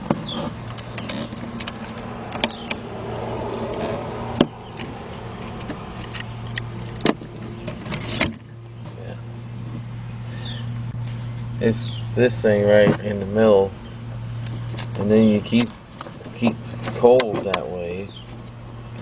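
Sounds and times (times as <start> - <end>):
sharp clicks and knocks: 0.0 - 2.8
steady low hum: 0.0 - 17.0.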